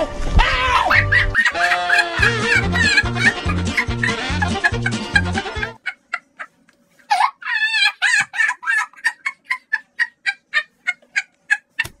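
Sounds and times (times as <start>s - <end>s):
fowl warbling call: 0.6s - 4.4s
fowl clucking: 0.8s - 12.0s.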